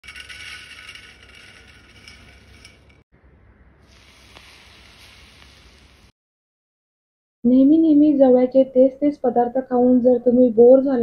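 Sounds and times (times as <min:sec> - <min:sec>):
hot oil sizzling: 0:03.8 - 0:06.2.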